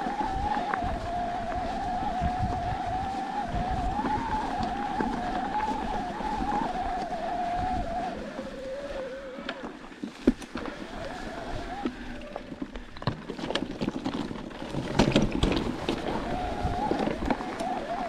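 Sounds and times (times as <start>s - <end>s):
electric bike motor whining: 0.0s - 9.9s, 10.5s - 12.7s, 15.4s - 18.0s.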